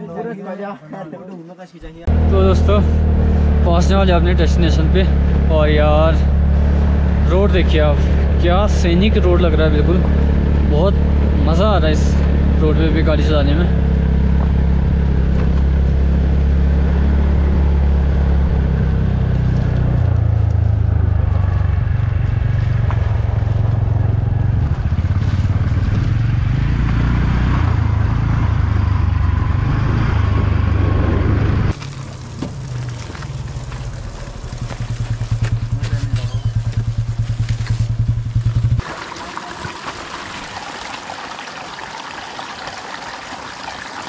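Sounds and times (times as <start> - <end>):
motor scooter engine running: 30.4 - 39.8
motorbike engine idling: 32.2 - 38.8.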